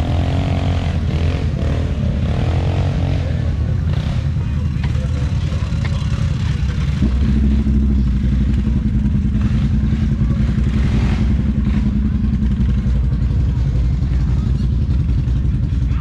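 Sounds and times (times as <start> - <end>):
atv engine revving: 0.0 - 16.0.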